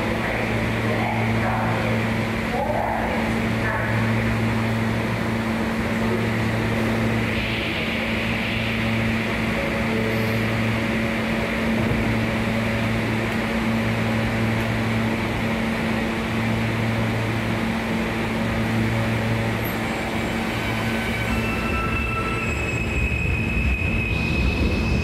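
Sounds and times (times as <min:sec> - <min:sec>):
subway train drone: 0:00.0 - 0:25.0
train wheels squealing: 0:19.6 - 0:25.0.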